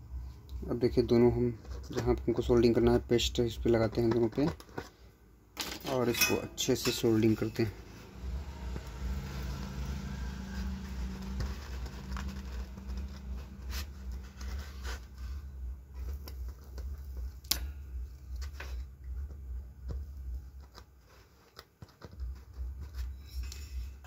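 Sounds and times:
steady low hum: 5.1s - 21.2s.

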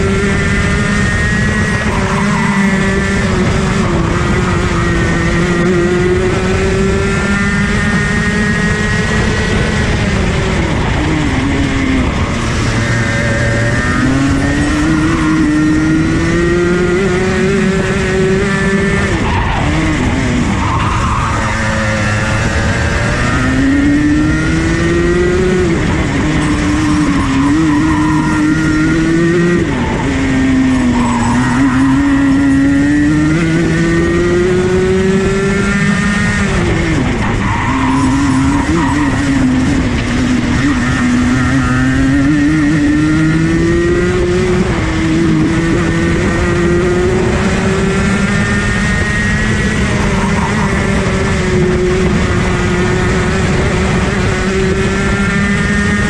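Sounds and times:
kart engine at full throttle: 0.0s - 56.0s.

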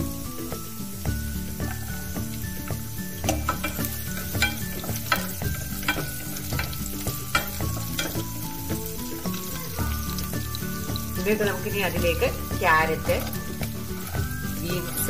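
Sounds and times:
garlic sizzling in hot oil: 0.0s - 15.0s
spatula scraping pot: 3.2s - 10.9s.

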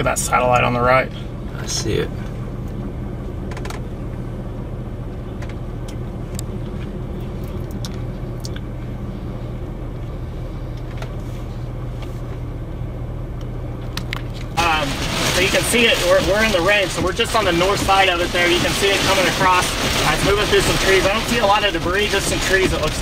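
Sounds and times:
vehicle engine drone from cabin: 0.0s - 23.0s.

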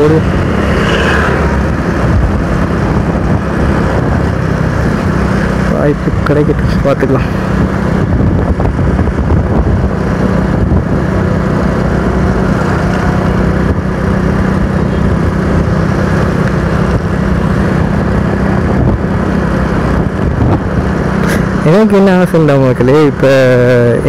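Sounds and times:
motorcycle engine cruising: 0.0s - 24.0s
wind and road noise: 0.0s - 24.0s.

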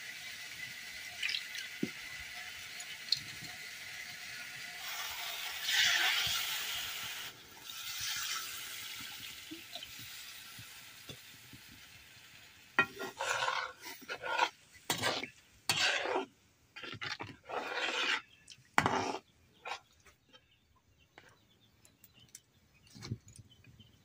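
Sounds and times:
pan sizzling: 0.0s - 18.2s, 18.8s - 19.8s
spatula stirring pan: 4.3s - 6.8s, 12.8s - 20.3s.

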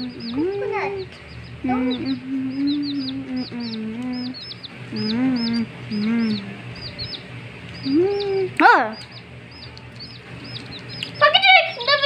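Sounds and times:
person humming: 0.0s - 6.7s, 7.8s - 8.6s
baby chicks peeping: 0.0s - 12.0s.

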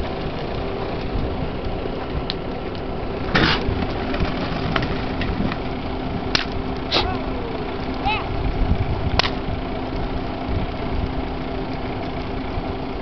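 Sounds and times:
fire rushing and popping: 0.0s - 13.0s
steady engine hum: 0.0s - 13.0s
burning structure collapsing: 3.2s - 7.0s.

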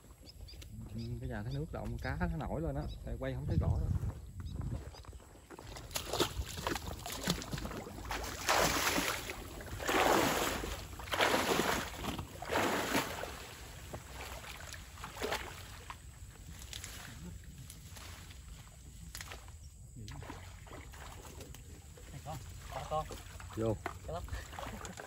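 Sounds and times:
water splashing around legs: 5.5s - 25.0s.

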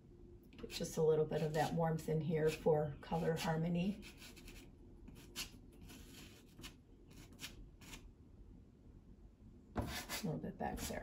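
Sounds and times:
pastel stick scratching on paper: 2.5s - 8.0s.

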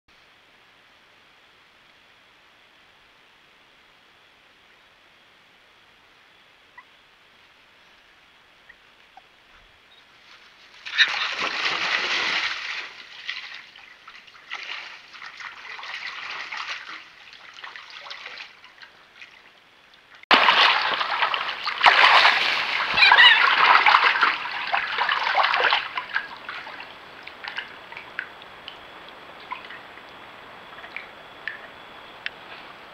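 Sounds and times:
otters splashing through water: 10.7s - 32.4s.

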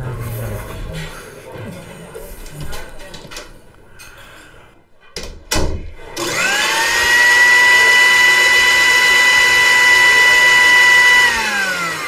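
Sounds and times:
mixer grinder motor whining: 6.2s - 12.0s.

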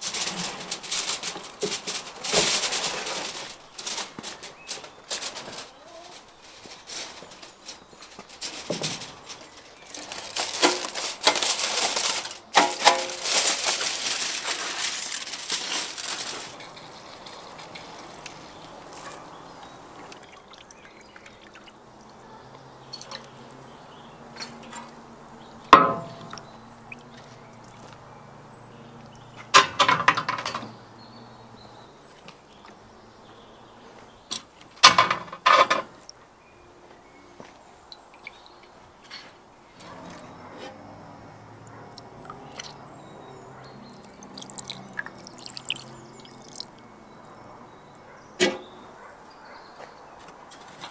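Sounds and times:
metal skewers clinking: 44.0s - 46.8s.

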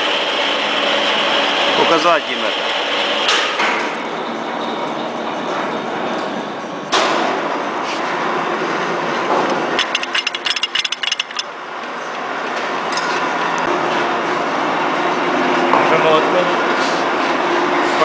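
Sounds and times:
workshop noise: 0.0s - 18.0s
rattle of light metallic clicks: 9.8s - 11.5s.

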